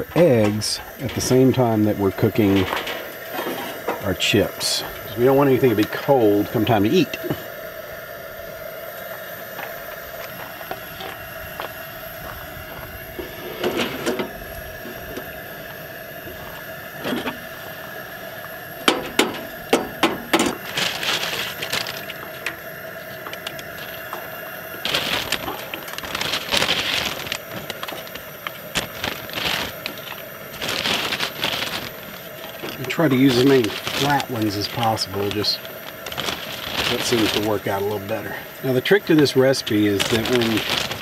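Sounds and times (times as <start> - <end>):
tortilla chips crunching: 18.9 - 38.1, 39.7 - 41.0.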